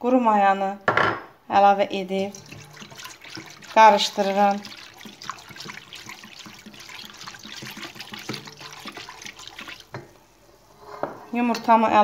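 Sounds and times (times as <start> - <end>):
whisk stirring liquid in a bowl: 2.1 - 10.2.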